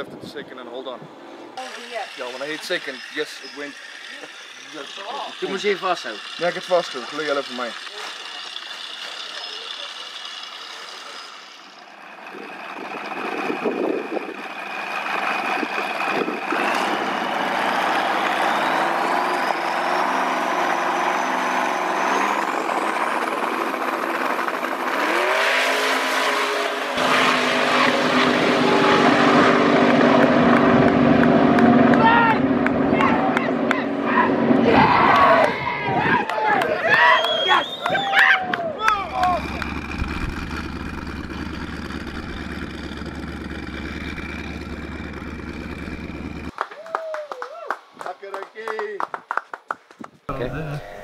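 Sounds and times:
drag car engine revving: 1.6s - 35.4s, 38.8s - 46.6s
turbo whistle: 36.9s - 38.3s.

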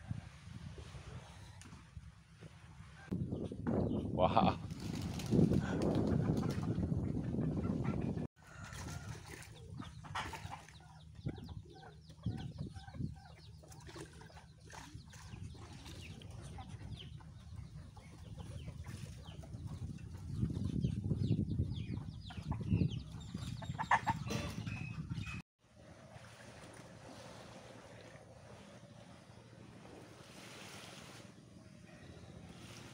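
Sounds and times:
chickens clucking: 6.0s - 14.4s, 16.0s - 25.4s.

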